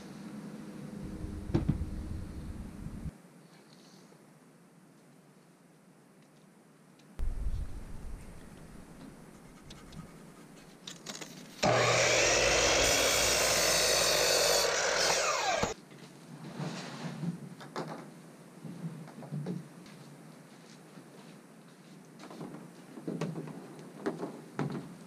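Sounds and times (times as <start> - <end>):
miter saw cutting wood: 11.6 - 15.8.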